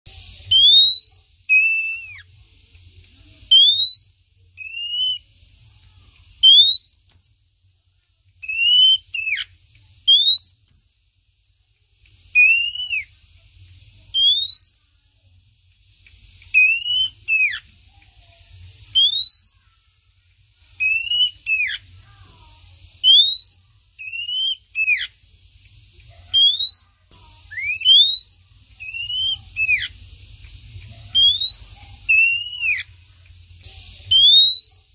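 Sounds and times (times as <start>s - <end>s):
faint steady high tone: 0.1s - 11.3s
bird whistled calls: 0.2s - 2.3s, 3.5s - 5.3s, 6.4s - 7.4s, 8.4s - 10.9s, 12.3s - 13.2s, 14.1s - 14.8s, 16.4s - 17.7s, 18.8s - 19.7s, 20.8s - 21.9s, 23.0s - 25.2s, 26.3s - 30.0s, 31.1s - 33.0s, 33.8s - 34.9s.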